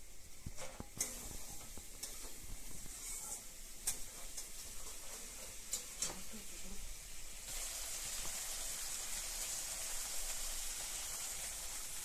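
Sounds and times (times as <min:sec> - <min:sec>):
fish sizzling in oil: 0:00.0 - 0:12.0
steel spoon scraping a pan: 0:00.6 - 0:06.2.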